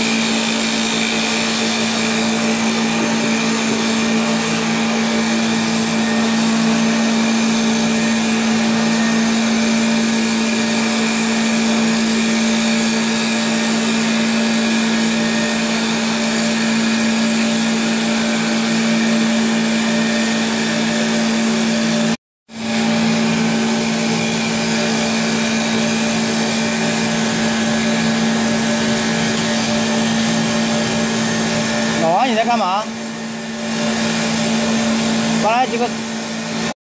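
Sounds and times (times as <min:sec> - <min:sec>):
lathe motors humming: 0:00.0 - 0:36.8
knives cutting spinning wood: 0:23.1 - 0:32.7.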